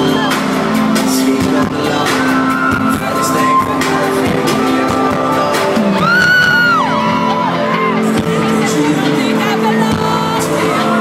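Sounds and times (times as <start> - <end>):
crowd singing along and cheering: 0.0 - 11.0
hip-hop music over pa: 0.0 - 11.0.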